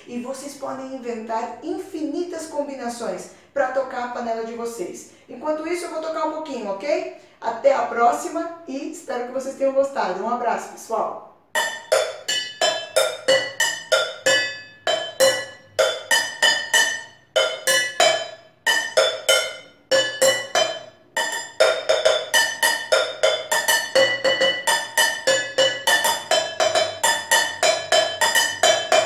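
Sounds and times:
sticks drumming on pots and pans: 11.6s - 29.0s.

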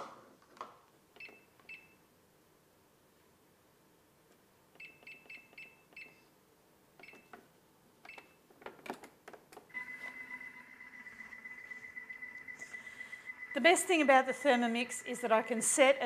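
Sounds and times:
control panel beeps: 4.8s - 6.3s
kitchen machine whine: 9.7s - 16.0s.

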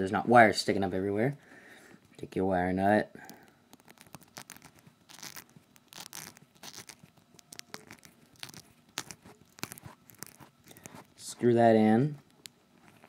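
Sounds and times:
wire nut scratching and clicking: 3.3s - 11.3s.

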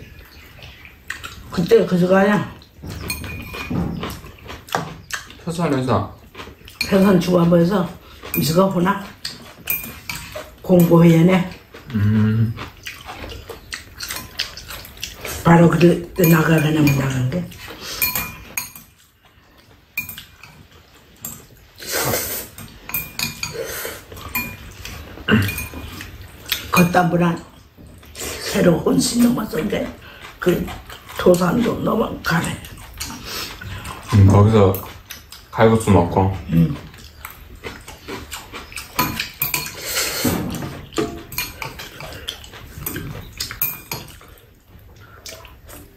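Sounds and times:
noodles slurped and chewed: 0.0s - 45.9s
metal chopsticks clinking on bowls: 2.9s - 4.2s, 6.7s - 11.6s, 14.0s - 19.0s, 20.0s - 21.5s, 22.5s - 27.2s, 37.2s - 39.8s, 41.0s - 44.3s
metal chopsticks clicking on bowls: 15.8s - 17.4s
slurping noodles: 21.8s - 22.6s, 39.7s - 40.5s.

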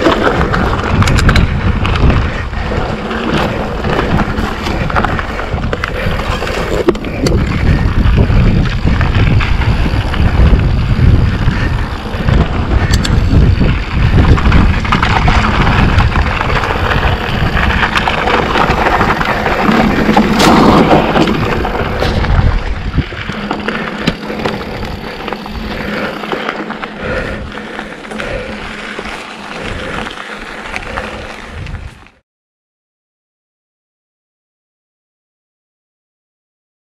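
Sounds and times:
bike clicks and rattles: 0.0s - 32.2s
tyres rolling over dirt: 0.0s - 32.2s
wind buffeting microphone: 0.0s - 32.2s.

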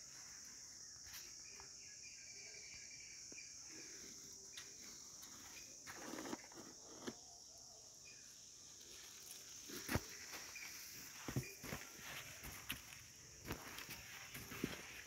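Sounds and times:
insects chirring: 0.0s - 15.0s
soft footfalls on sand: 9.6s - 15.0s.

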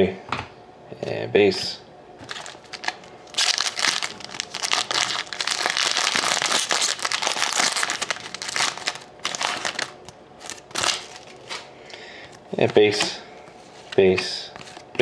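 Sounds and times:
foil wrapper tearing and crinkling: 2.2s - 11.7s.

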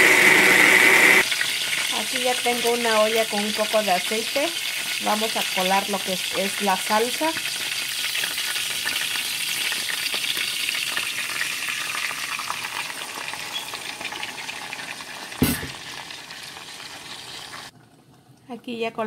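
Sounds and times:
salsa sizzling in hot oil: 0.0s - 17.8s
sharp knock: 15.4s - 15.8s.

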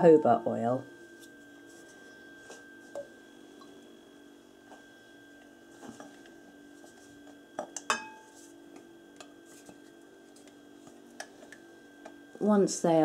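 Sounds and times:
faint steady hum: 0.0s - 13.0s
glassware clinking: 7.6s - 8.3s.

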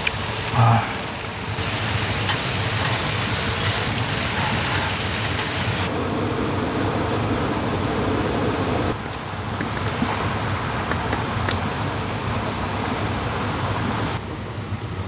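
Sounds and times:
water rushing over rocks: 8.9s - 14.2s.

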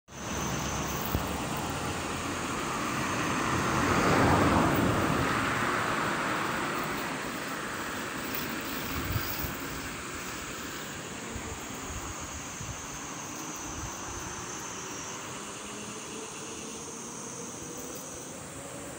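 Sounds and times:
car passing: 0.1s - 18.9s
faint cicada drone: 0.1s - 18.9s
outdoor background noise: 0.1s - 18.9s.

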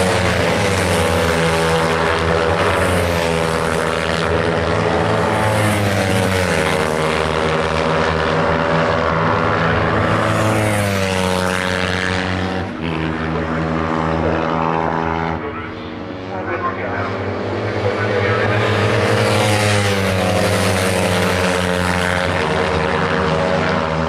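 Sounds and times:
racing motorcycle engines: 0.0s - 24.0s.

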